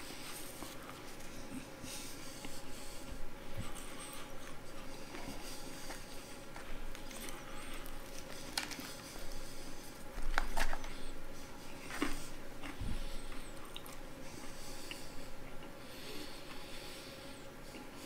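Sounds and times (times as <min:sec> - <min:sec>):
man chewing fried chicken: 0:00.0 - 0:18.0
chicken tearing apart: 0:05.9 - 0:09.4.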